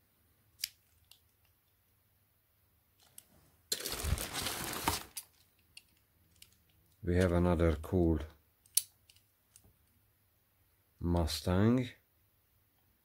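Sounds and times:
plastic bag rustling: 0:03.7 - 0:05.4.

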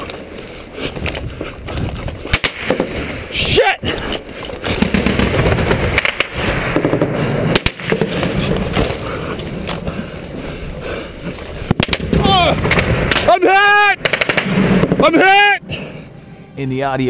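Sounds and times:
gunshots: 0:02.3 - 0:03.2, 0:04.6 - 0:09.0, 0:11.7 - 0:15.2.

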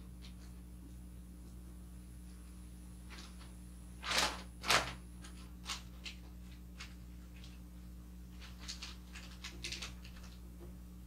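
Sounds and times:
wrapping paper rustling and crinkling: 0:04.0 - 0:07.6, 0:08.3 - 0:10.4.

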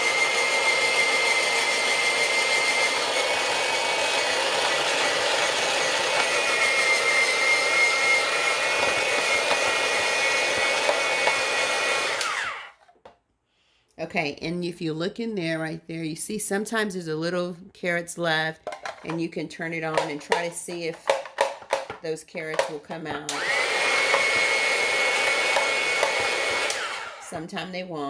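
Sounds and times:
electric shredder motor whine: 0:00.0 - 0:12.8, 0:23.3 - 0:27.4.

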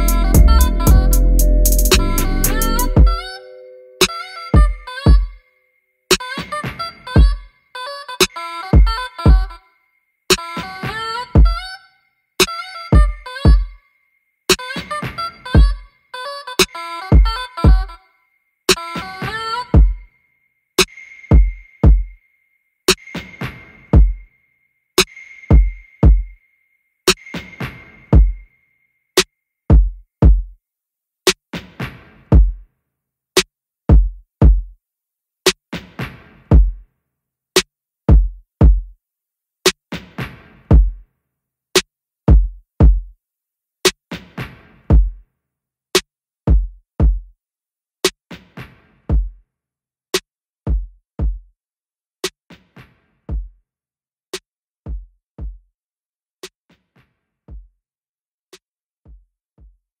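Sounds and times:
snare-like hit: 0:00.0 - 0:03.1
drum-machine beat: 0:00.0 - 0:03.3, 0:04.0 - 0:05.3, 0:08.2 - 0:09.5, 0:11.4 - 0:11.6, 0:13.0 - 0:13.6, 0:15.6 - 0:15.8, 0:16.6 - 0:17.9, 0:19.8 - 0:20.0, 0:20.8 - 0:22.2, 0:24.0 - 0:24.2, 0:25.0 - 0:26.3, 0:27.1 - 0:28.4, 0:29.7 - 0:30.6, 0:32.3 - 0:32.6, 0:33.9 - 0:34.7, 0:36.5 - 0:36.8, 0:38.1 - 0:38.9, 0:40.7 - 0:41.0, 0:42.3 - 0:43.1, 0:44.9 - 0:45.2, 0:46.5 - 0:47.3, 0:49.1 - 0:49.3, 0:50.7 - 0:51.5, 0:54.9 - 0:55.6
deep kick drum hits: 0:00.4 - 0:01.1, 0:40.7 - 0:41.0.

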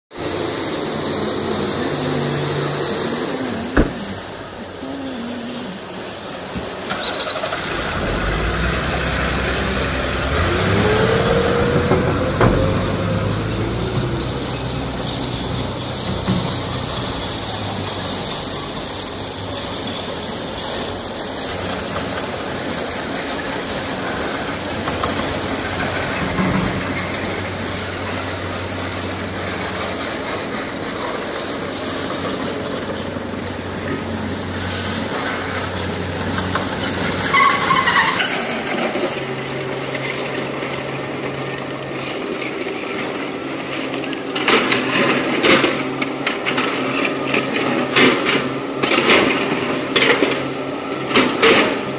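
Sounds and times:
dump truck diesel engine running: 0:00.1 - 0:51.9
excavator diesel engine running: 0:00.1 - 0:51.9
steel bucket scraping rock: 0:00.3 - 0:51.9
brief squeal: 0:01.6 - 0:22.0, 0:24.6 - 0:38.8.

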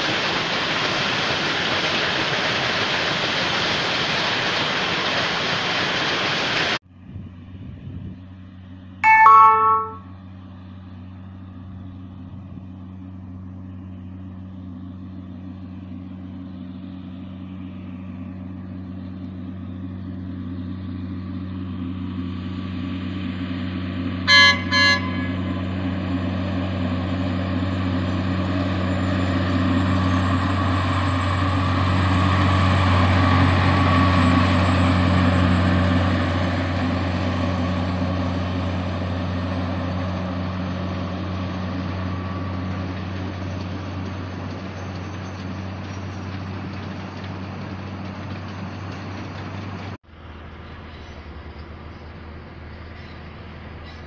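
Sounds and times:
diesel locomotive engine running: 0:00.0 - 0:54.0
locomotive horn toots: 0:09.0 - 0:10.4, 0:24.2 - 0:26.0.

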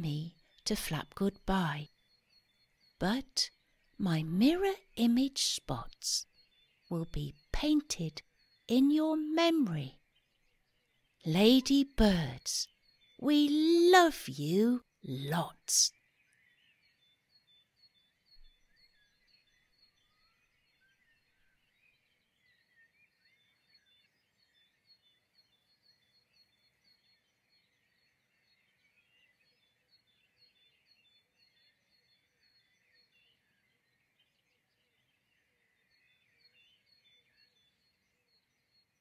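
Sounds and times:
small birds chirping: 0:00.0 - 0:39.0.

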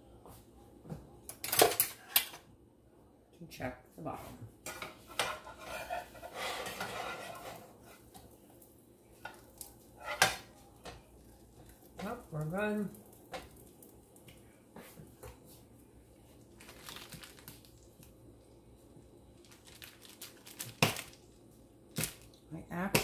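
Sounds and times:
spatula scraping frying pan: 0:04.7 - 0:08.2, 0:09.2 - 0:10.5.

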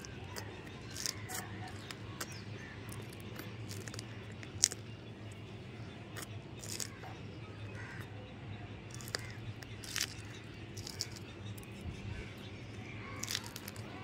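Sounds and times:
chilli crunching: 0:00.0 - 0:08.1, 0:08.8 - 0:14.0
low steady hum: 0:00.0 - 0:14.0.

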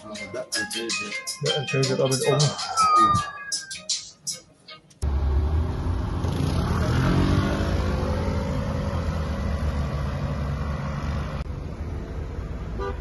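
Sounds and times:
motor vehicle passing: 0:05.0 - 0:12.8.

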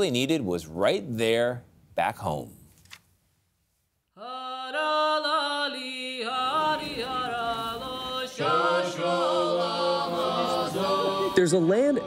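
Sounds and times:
chant-like singing voice: 0:04.2 - 0:12.0
lower voices singing: 0:04.2 - 0:12.0.

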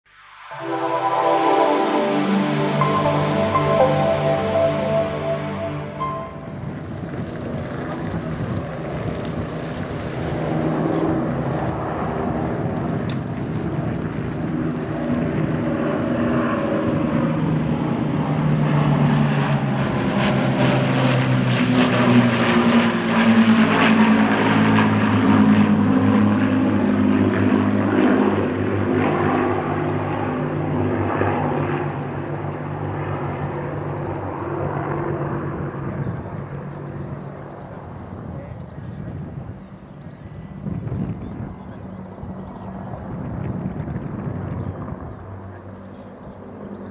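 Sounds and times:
propeller aircraft flying over: 0:06.6 - 0:38.8.

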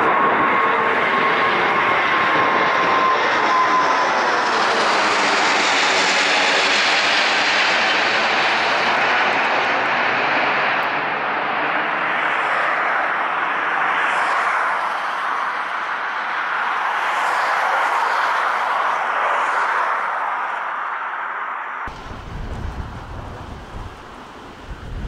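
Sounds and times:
jet airliner roaring overhead: 0:00.0 - 0:25.0
thin jet whine: 0:21.9 - 0:25.0.

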